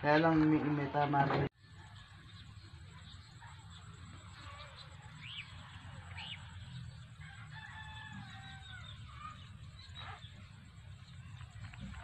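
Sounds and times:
distant rooster crowing: 0:04.4 - 0:10.0.

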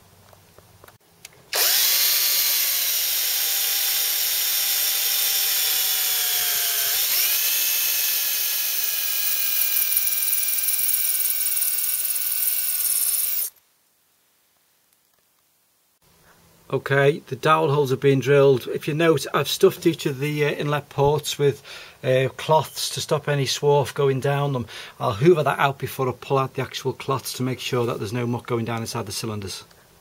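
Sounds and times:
electric drill whining: 0:01.5 - 0:13.6.

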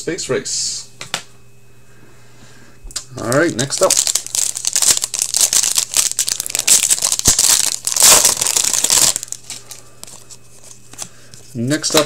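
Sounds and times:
foil wrapper tearing and crinkling: 0:03.2 - 0:11.0.

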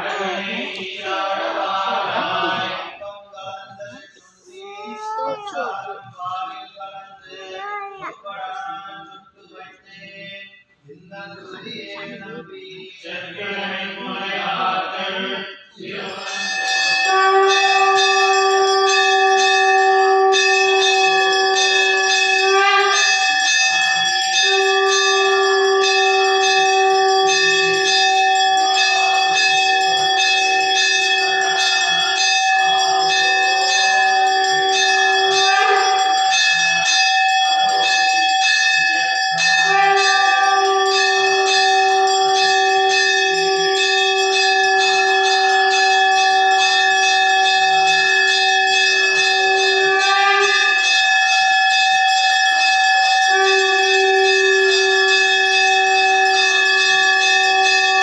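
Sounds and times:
temple bells ringing rapidly: 0:15.8 - 0:58.0.

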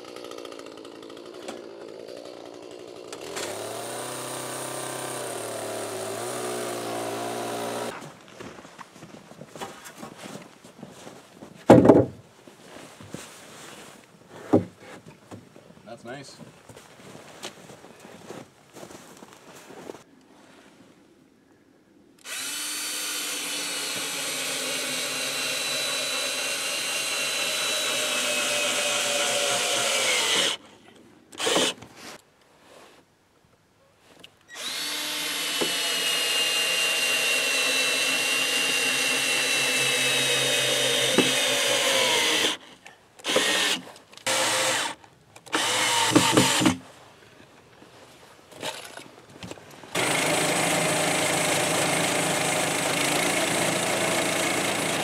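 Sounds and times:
sawmill engine running: 0:00.0 - 0:08.0, 0:22.2 - 0:30.6, 0:34.6 - 0:42.6, 0:43.3 - 0:46.8, 0:49.9 - 0:55.0
cordless drill boring into wood: 0:03.1 - 0:07.9, 0:22.2 - 0:30.6, 0:31.4 - 0:31.8, 0:34.5 - 0:42.6, 0:43.2 - 0:46.8, 0:49.9 - 0:55.0.

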